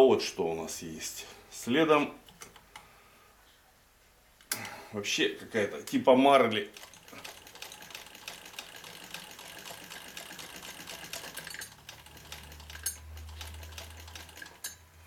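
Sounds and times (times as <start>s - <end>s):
sewing machine stitching: 6.7s - 14.8s.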